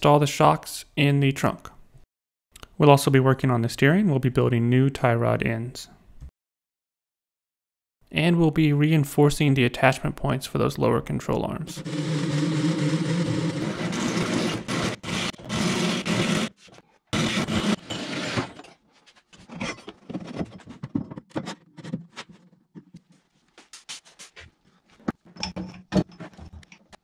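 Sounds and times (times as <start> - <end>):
welding arc buzzing: 11.8 - 16.5.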